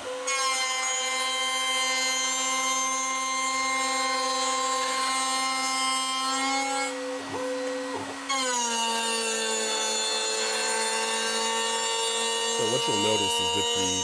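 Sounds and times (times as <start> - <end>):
rasping cutting noise: 0.0 - 14.0
router spindle whining: 6.4 - 14.0.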